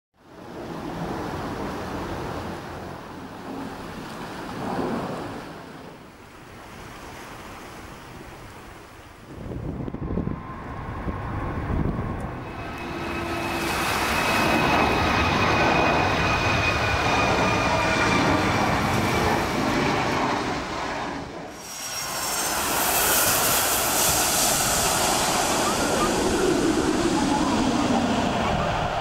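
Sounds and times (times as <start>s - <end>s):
jet engines rushing and whining: 9.3s - 29.0s.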